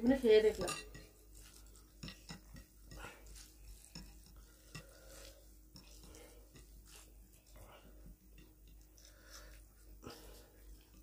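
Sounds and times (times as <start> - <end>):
hands mixing food on plates: 0.0 - 11.0.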